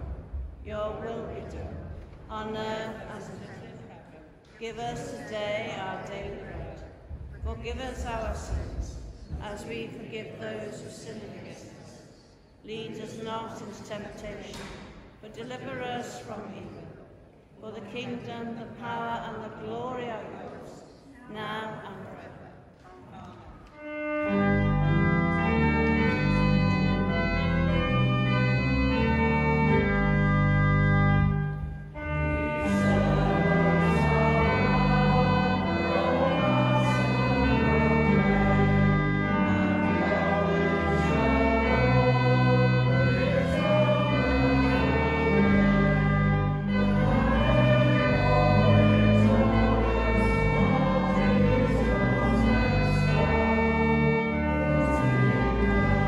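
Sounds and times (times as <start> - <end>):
pipe organ playing chords: 0.0 - 3.6, 23.6 - 56.0
people singing a hymn: 32.0 - 56.0.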